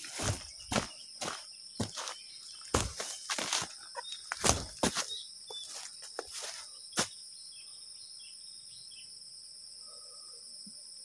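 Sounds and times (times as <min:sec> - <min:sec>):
footsteps crunching dry leaves: 0:00.0 - 0:07.2
insects droning: 0:00.0 - 0:11.0.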